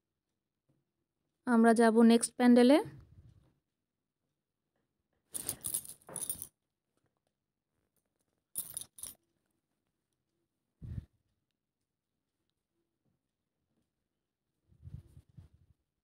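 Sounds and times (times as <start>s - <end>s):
metallic clinking and jingling: 5.4s - 6.5s, 8.6s - 9.2s.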